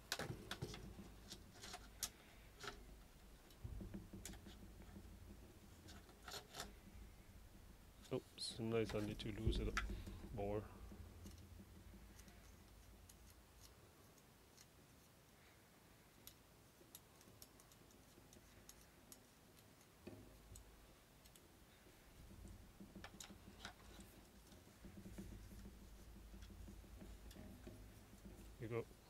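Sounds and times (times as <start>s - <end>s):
faint clicks of gun parts: 11.2s - 21.8s.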